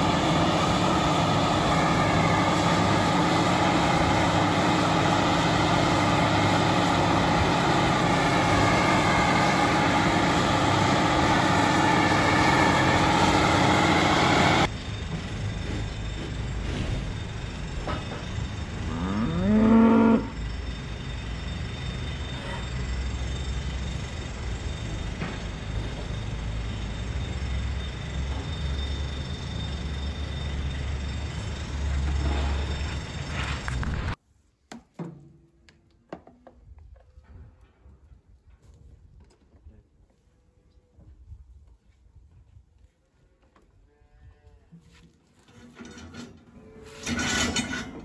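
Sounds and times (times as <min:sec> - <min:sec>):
cow mooing: 0:18.8 - 0:20.4.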